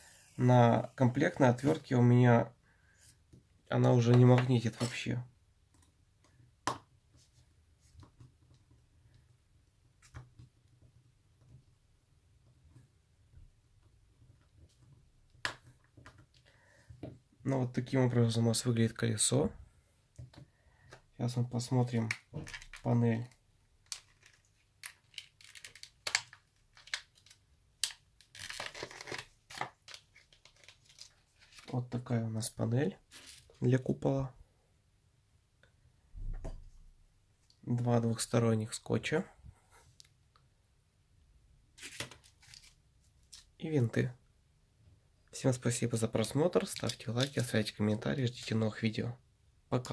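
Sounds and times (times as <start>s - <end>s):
plastic packaging crinkling: 23.9s - 27.4s, 28.2s - 31.8s
plastic tearing rustle: 28.2s - 31.8s.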